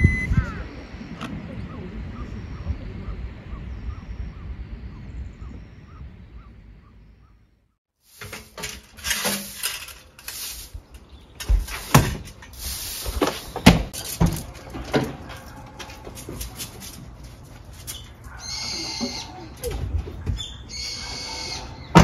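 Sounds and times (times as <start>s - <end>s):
low outdoor rumble: 0.0s - 7.8s.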